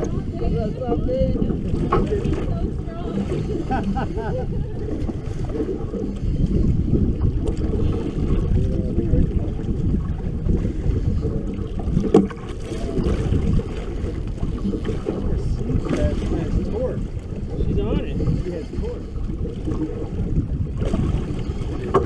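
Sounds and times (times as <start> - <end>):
faint voices: 0.0 - 5.2
wind on microphone: 0.0 - 22.0.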